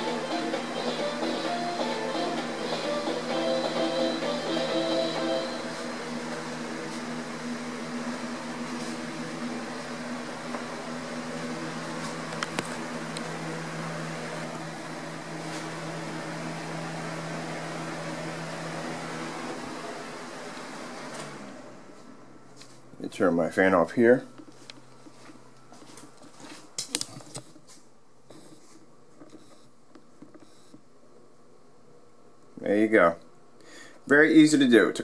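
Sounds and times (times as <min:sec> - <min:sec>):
electric fan humming: 0:00.0 - 0:35.0.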